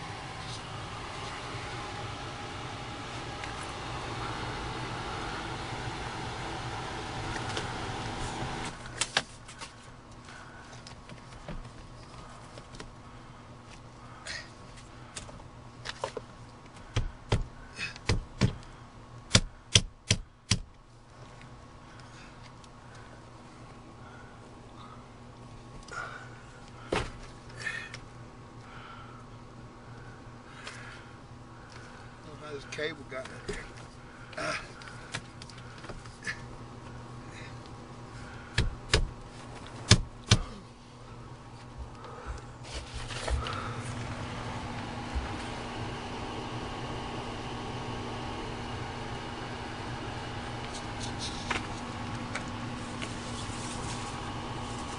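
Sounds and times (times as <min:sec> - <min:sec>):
low electrical hum: 0:00.0 - 0:54.9.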